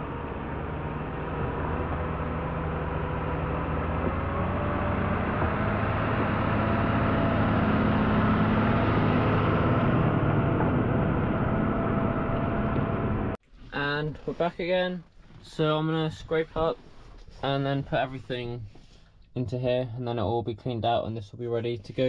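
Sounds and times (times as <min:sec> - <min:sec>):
tractor diesel engine: 0:00.0 - 0:13.4.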